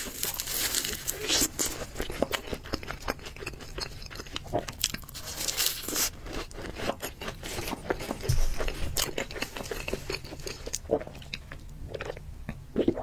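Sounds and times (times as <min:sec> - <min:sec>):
wet chewing: 0:00.0 - 0:13.0
dull low bump: 0:08.0 - 0:09.6.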